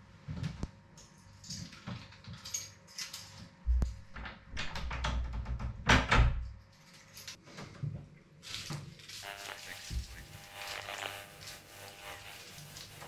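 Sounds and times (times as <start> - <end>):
door clunking and rattling: 3.7 - 6.5.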